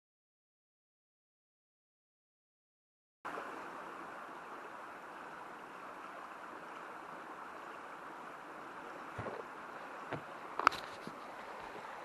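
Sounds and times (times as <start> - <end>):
fast-flowing mountain stream: 3.3 - 12.0.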